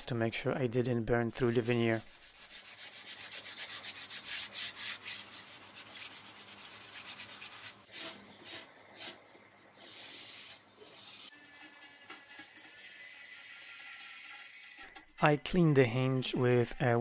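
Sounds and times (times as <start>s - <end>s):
sanding sponge rubbing wood: 1.4s - 9.2s.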